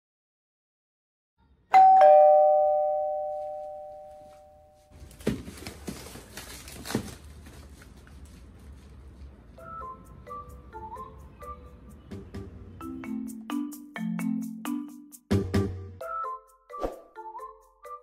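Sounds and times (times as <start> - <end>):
two-note doorbell chime: 1.7 - 4.9.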